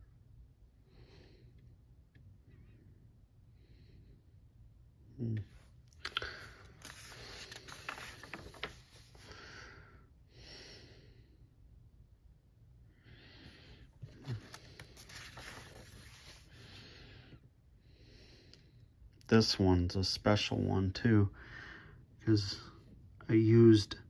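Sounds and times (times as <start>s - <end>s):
person breathing: 0.8s - 1.7s, 2.5s - 4.4s, 5.4s - 11.6s, 12.8s - 19.0s, 21.3s - 22.9s
paper pages rustling: 6.3s - 9.3s, 14.0s - 16.5s.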